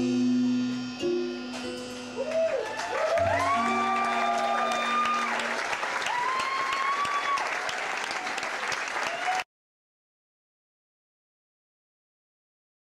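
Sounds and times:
guitar music: 0:00.0 - 0:05.6
audience cheering and whooping: 0:02.2 - 0:09.4
audience clapping: 0:02.2 - 0:09.5.

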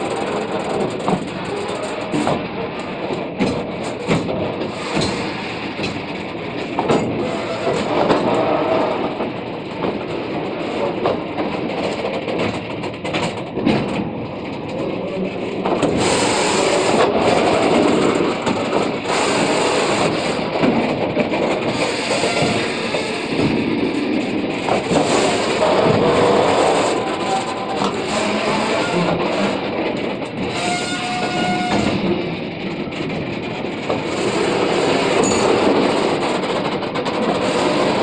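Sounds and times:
train wagon knocks and clacks: 0:00.0 - 0:38.0
train wheels rumbling on rail: 0:00.0 - 0:38.0.

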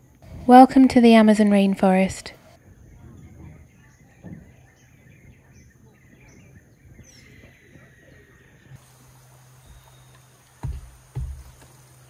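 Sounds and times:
soft bird chirps: 0:02.8 - 0:12.0
soft low thump: 0:10.6 - 0:11.7.

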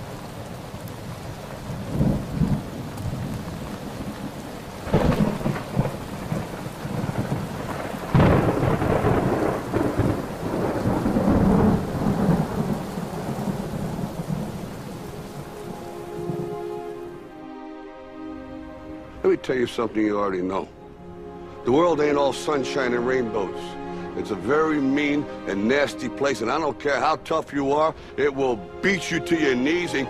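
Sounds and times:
thunder claps rumbling: 0:00.0 - 0:16.8
steady rain: 0:00.0 - 0:30.0.

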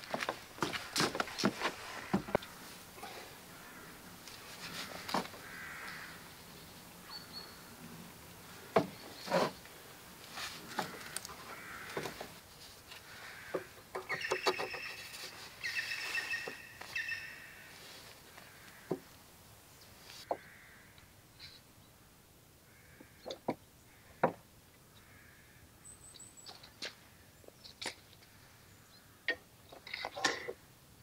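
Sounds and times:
bird calling: 0:00.6 - 0:07.8, 0:13.0 - 0:19.0.

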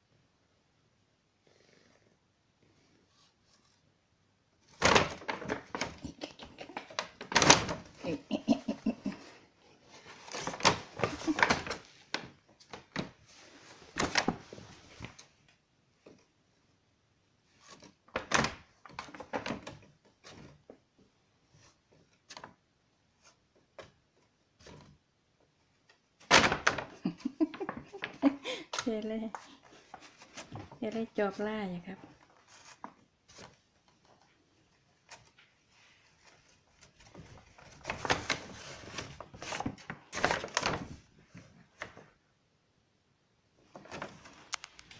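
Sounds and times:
paper bag crackling and rustling: 0:04.6 - 0:06.2, 0:06.8 - 0:08.4, 0:09.8 - 0:15.3, 0:17.6 - 0:20.6, 0:26.2 - 0:31.2, 0:35.1 - 0:42.0, 0:43.7 - 0:44.9.

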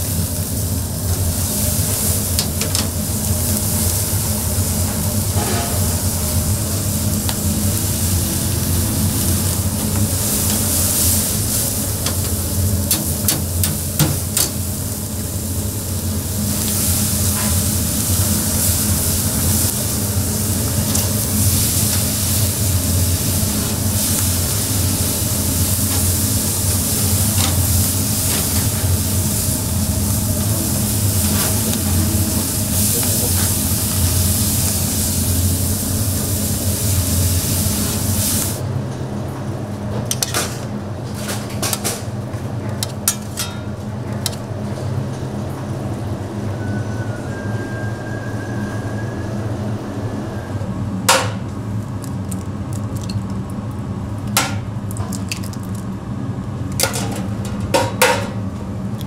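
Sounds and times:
food sizzling: 0:00.0 - 0:38.6
low machine hum: 0:00.0 - 0:59.0.

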